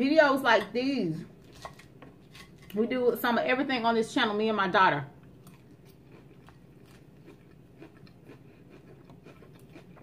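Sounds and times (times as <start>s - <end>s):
chewing salad: 5.2s - 10.0s.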